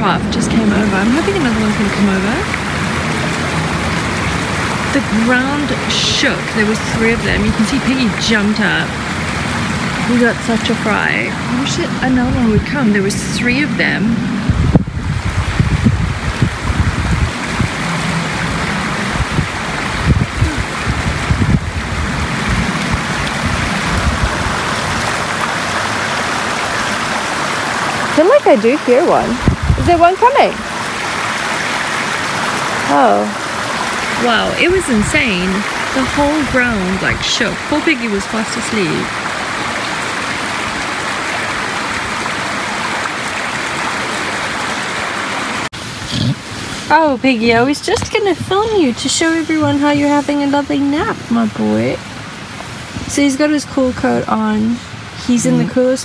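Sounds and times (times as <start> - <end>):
steady rushing noise: 0.0 - 40.3
stream running: 0.0 - 56.0
wind gusting on microphone: 0.0 - 56.0.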